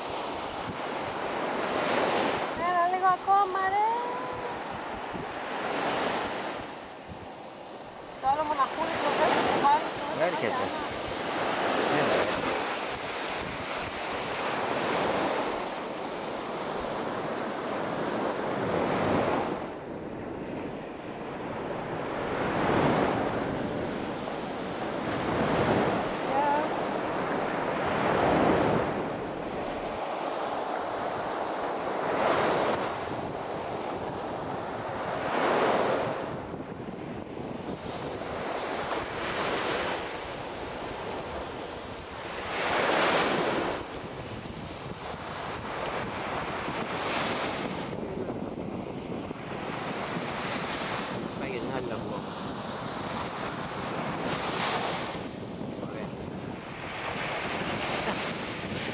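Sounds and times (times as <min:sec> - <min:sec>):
sea waves washing onto beach: 0:00.0 - 0:58.9
wind buffeting microphone: 0:00.0 - 0:58.9.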